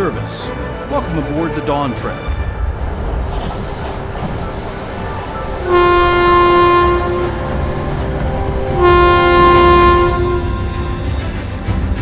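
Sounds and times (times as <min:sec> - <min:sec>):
train whistle blasts: 0:04.3 - 0:11.3.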